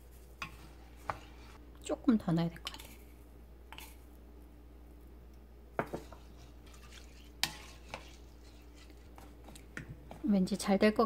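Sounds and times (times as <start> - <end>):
spatula stirring rice: 0.0 - 1.6, 5.8 - 10.8.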